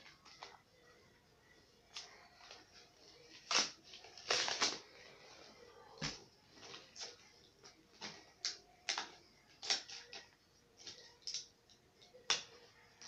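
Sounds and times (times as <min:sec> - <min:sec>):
packaging clicking and crinkling: 0:01.9 - 0:04.9.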